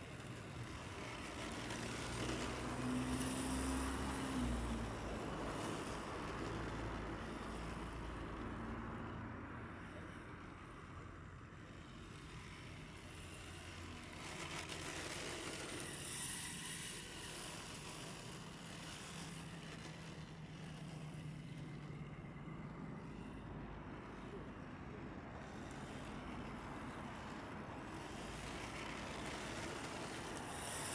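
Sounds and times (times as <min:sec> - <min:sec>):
tyres sliding on asphalt: 0:00.0 - 0:30.9
electric motor whining: 0:12.3 - 0:22.0.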